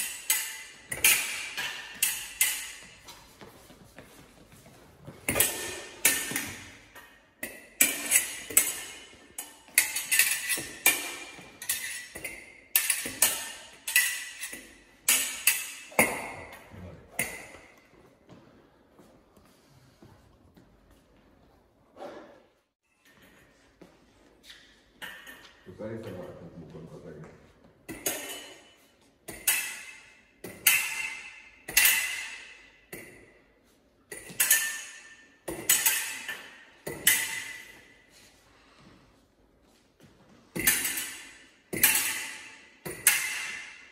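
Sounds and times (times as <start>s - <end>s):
fencing blades clashing: 0.0s - 18.2s, 24.5s - 26.6s, 27.8s - 39.0s, 39.6s - 43.9s.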